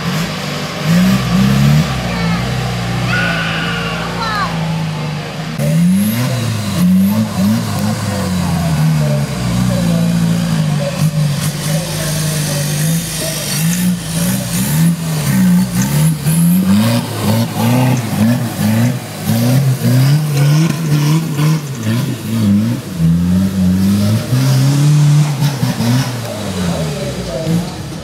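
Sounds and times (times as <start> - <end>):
off-road engine revving: 0.0 - 28.0.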